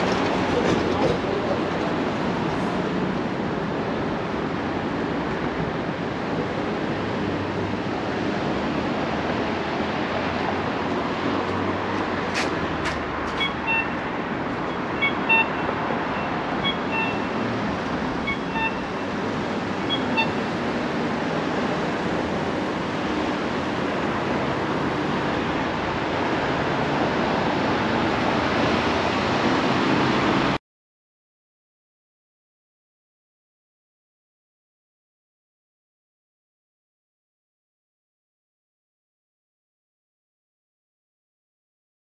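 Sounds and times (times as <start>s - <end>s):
city street traffic: 0.0s - 30.6s
short high beeps: 13.4s - 14.0s, 15.0s - 17.4s, 18.3s - 19.0s, 19.8s - 20.4s.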